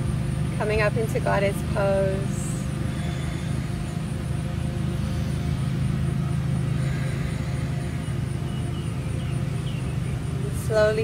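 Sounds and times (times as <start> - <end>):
low mechanical rumble and hum: 0.0 - 11.0.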